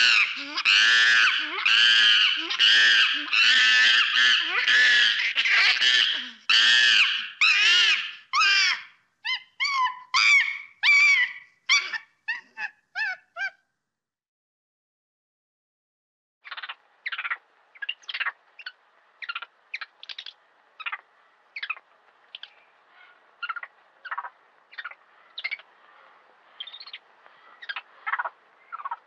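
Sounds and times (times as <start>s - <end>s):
high-pitched animal calls: 0.0s - 13.6s.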